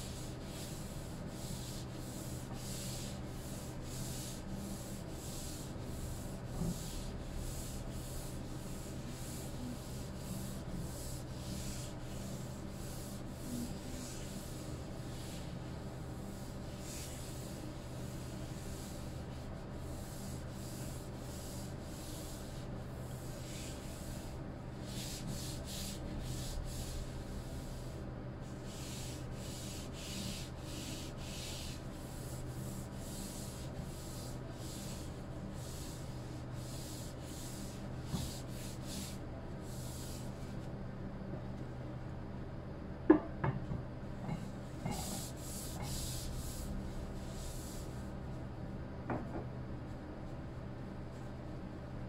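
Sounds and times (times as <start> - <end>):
paper towel rubbing wooden board: 0.1 - 40.6, 44.8 - 48.1.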